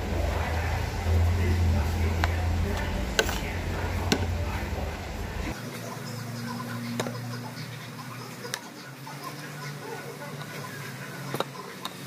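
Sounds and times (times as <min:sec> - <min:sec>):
low background rumble: 0:00.0 - 0:05.6.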